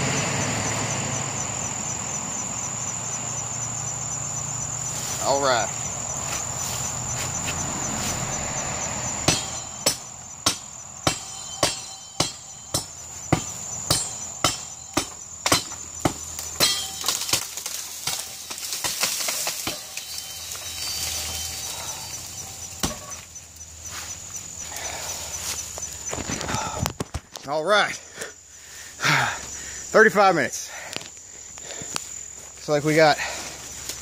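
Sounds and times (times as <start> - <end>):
sword chopping into tree trunk: 9.3 - 20.3, 22.8 - 23.3
tree falling with cracking branches: 16.4 - 23.1.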